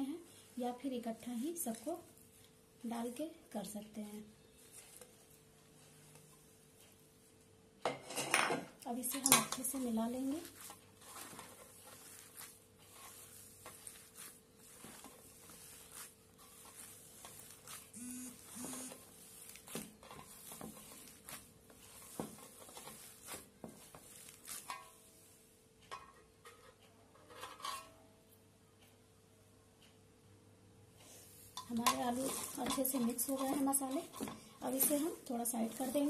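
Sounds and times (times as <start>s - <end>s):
hands squishing potato: 9.6s - 18.0s.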